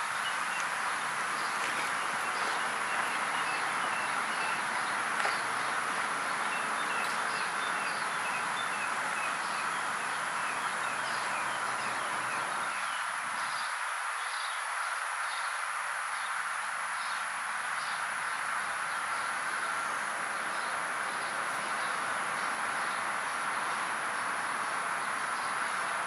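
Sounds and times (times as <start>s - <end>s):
small birds chirping: 0.0s - 14.6s
outdoor background noise: 0.0s - 26.0s.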